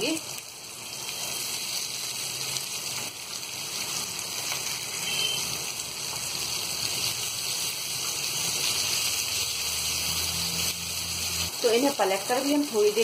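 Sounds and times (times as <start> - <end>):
meat sizzling in oil: 0.0 - 13.0.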